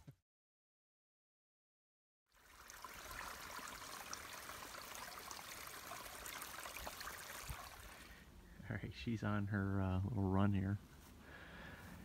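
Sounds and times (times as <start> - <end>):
stream trickling: 2.3 - 8.2.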